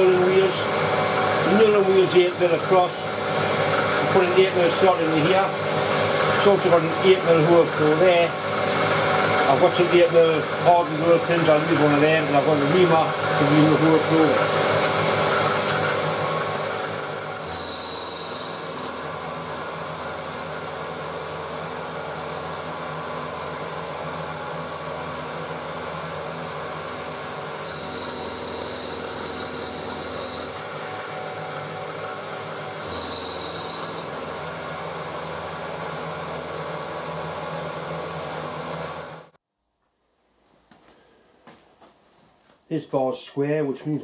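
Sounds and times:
milling machine drone: 0.0s - 39.3s
faint high whine: 17.4s - 19.0s, 32.8s - 34.3s.

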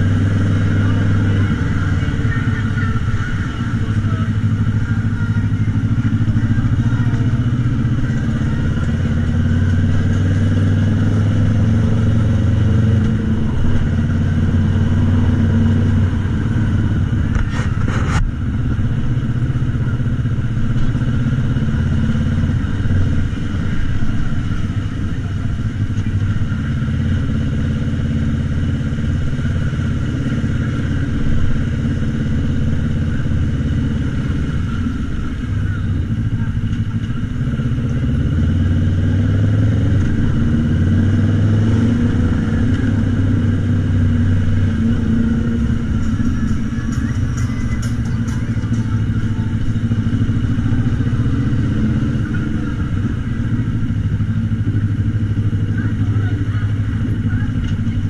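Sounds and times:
scooter engine running: 0.0s - 58.0s.

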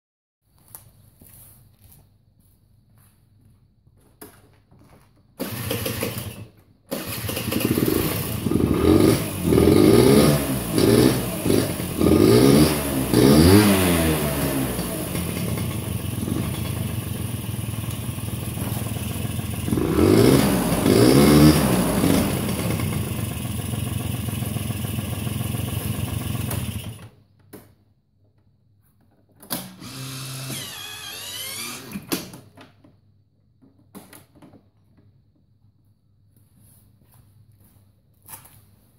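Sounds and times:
scooter engine revving: 5.4s - 27.1s, 29.8s - 32.1s.

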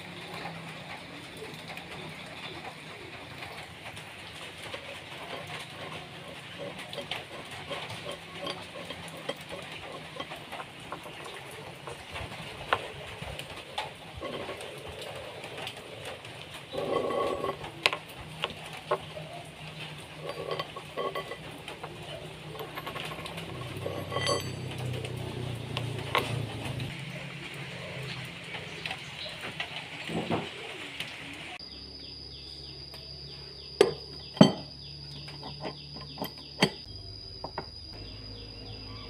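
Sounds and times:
metal rings clinking and scraping: 3.4s - 26.9s, 33.8s - 36.9s.

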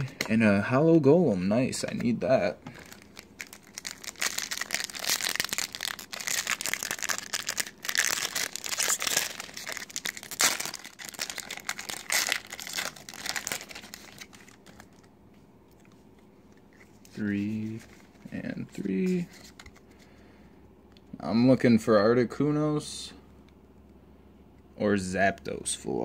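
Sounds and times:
wrapper crinkling and tearing: 2.7s - 15.1s.

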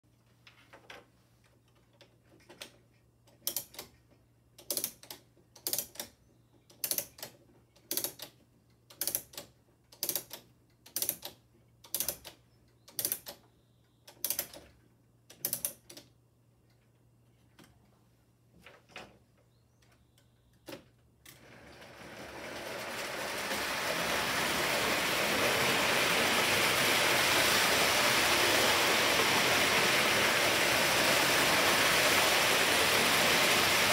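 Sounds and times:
wind-up ratchet clicking: 3.4s - 3.9s, 4.6s - 6.1s, 6.8s - 8.3s, 10.0s - 13.4s
toy trains rattling on track: 21.4s - 33.9s.

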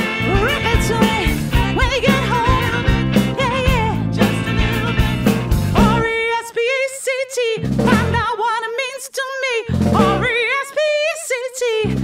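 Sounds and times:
woman singing with vibrato: 0.0s - 12.0s.

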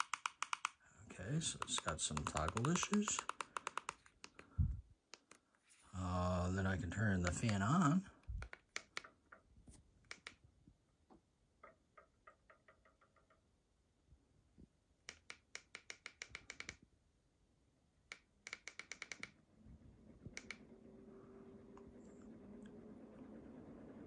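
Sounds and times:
ceiling fan motor hum: 19.4s - 24.0s.

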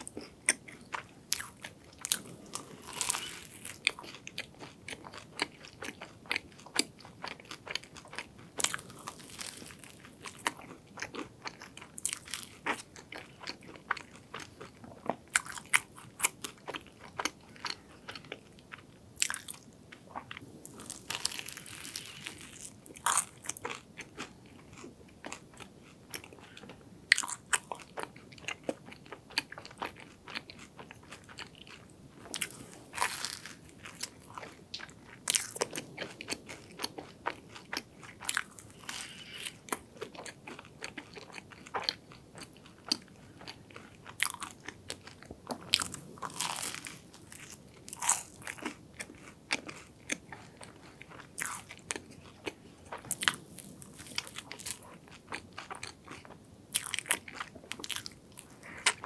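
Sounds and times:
soft chewing: 0.0s - 59.0s
crisp pastry crackling when bitten: 20.7s - 24.3s.

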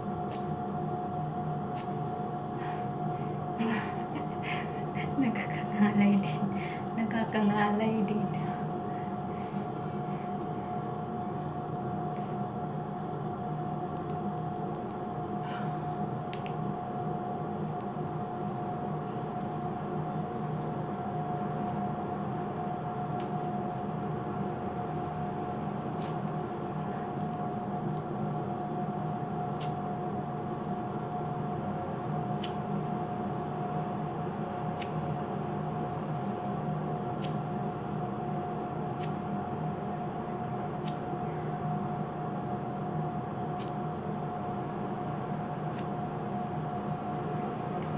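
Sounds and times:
sticky wax squishes: 0.0s - 2.5s, 13.4s - 19.8s, 24.3s - 30.0s, 32.3s - 33.6s, 34.3s - 35.2s, 36.0s - 41.6s, 43.5s - 46.1s
steady hum with constant tone: 0.0s - 47.9s.

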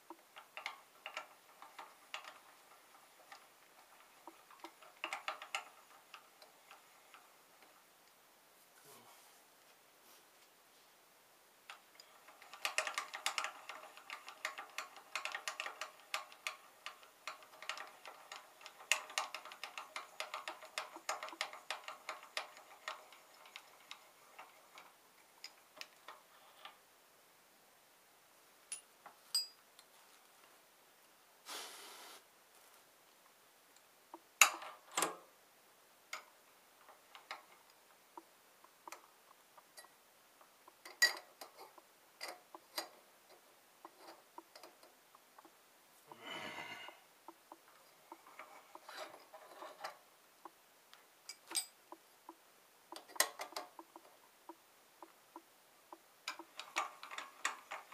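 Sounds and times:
scattered ticks: 36.9s - 45.6s, 51.9s - 57.9s.

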